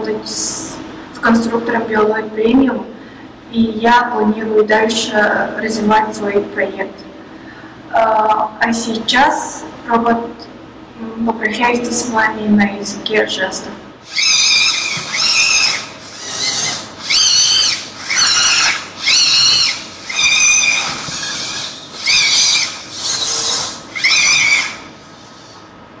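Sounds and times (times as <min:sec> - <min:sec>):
servo motors whining: 0:14.0 - 0:25.7.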